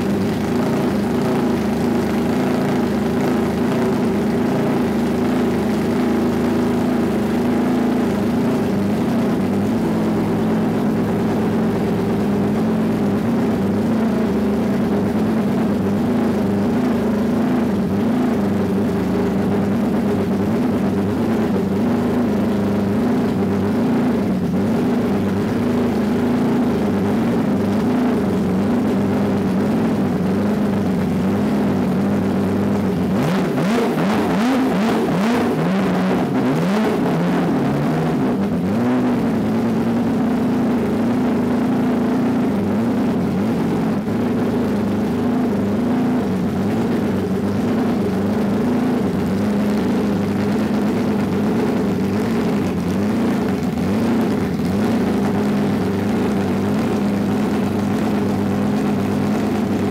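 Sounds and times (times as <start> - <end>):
race car engine idling: 0.0 - 59.9
engine revs rising: 33.1 - 39.4.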